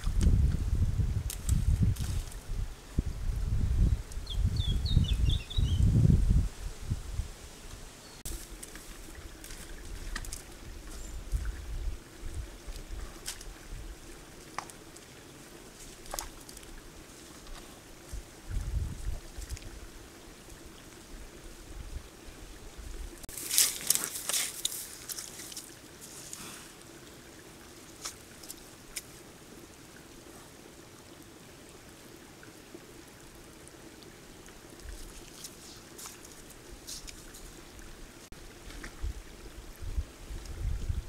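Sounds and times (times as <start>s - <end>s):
animal splashing in mud: 8.3s - 11.5s, 12.5s - 19.8s, 23.2s - 27.0s.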